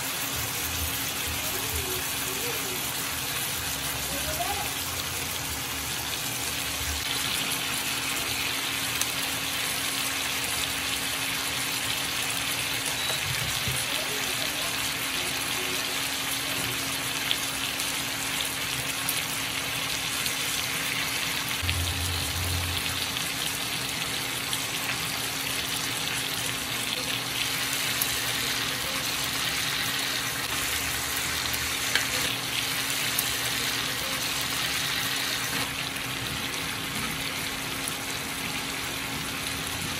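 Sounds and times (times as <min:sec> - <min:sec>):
chicken sizzling in a pan: 0:00.0 - 0:39.9
low hum: 0:21.6 - 0:23.3.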